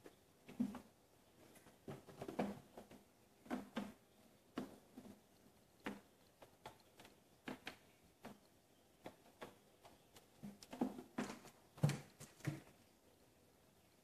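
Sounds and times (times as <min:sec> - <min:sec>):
kittens thumping on cat tree: 0:10.4 - 0:12.8.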